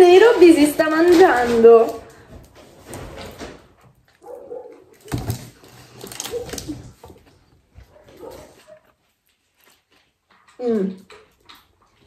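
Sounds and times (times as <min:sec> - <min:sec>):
chewing: 0:04.0 - 0:12.0
paper bag crackling: 0:05.0 - 0:07.2.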